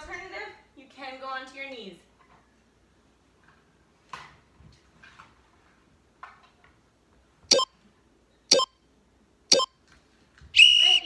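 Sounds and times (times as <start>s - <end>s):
interval timer beep: 7.5s - 7.7s, 8.5s - 8.8s, 9.5s - 9.7s.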